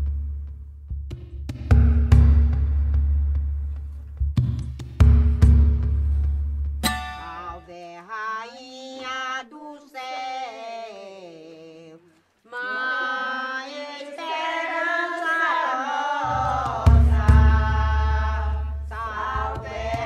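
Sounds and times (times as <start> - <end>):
deep bass beat: 0.0 - 7.6, 16.8 - 20.0.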